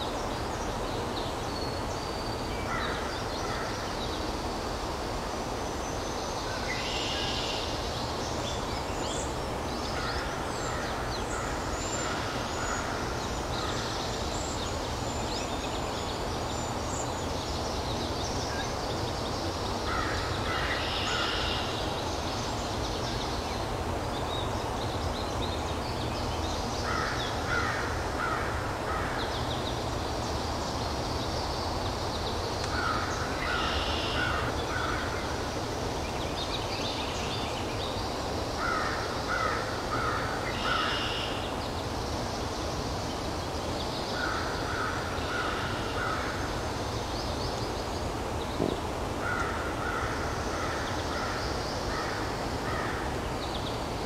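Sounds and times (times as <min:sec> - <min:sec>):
harsh crow-like bird calls: 0:19.9 - 0:21.8, 0:26.9 - 0:29.3, 0:32.7 - 0:35.3, 0:38.6 - 0:41.4, 0:44.2 - 0:46.5, 0:49.2 - 0:53.2.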